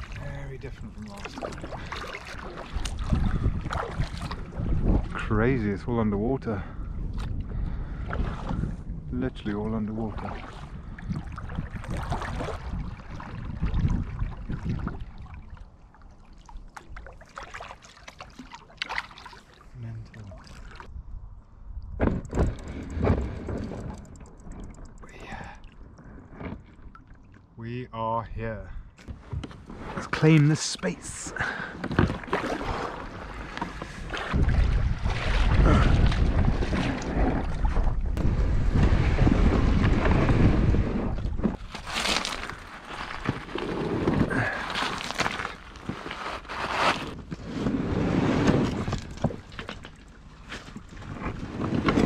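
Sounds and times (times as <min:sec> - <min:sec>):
wind rumble on microphone: 0:00.0 - 0:15.9, 0:19.8 - 0:26.7, 0:31.4 - 0:44.6, 0:47.1 - 0:52.0
water splashing and trickling: 0:00.0 - 0:21.0, 0:21.8 - 0:27.8, 0:29.8 - 0:47.1, 0:48.4 - 0:52.0.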